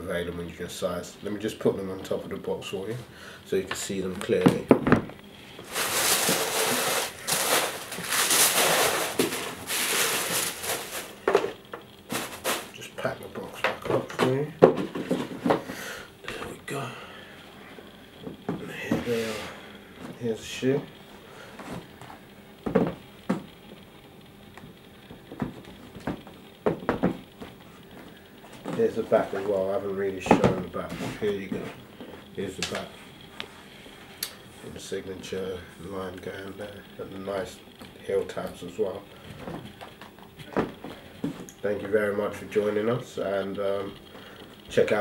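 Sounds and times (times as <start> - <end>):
tissue paper rustling: 5.6 - 11.2, 12.1 - 12.8
sneakers knocking on cardboard lid: 25.3 - 27.2.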